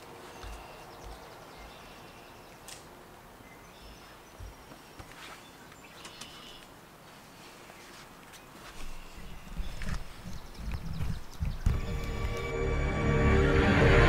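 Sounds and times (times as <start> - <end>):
distant bird chirps: 8.4 - 12.5.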